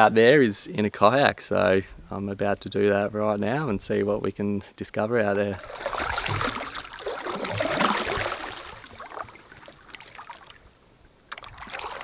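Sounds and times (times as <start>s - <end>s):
kayak paddle splashing in water: 5.6s - 10.7s, 11.3s - 12.0s.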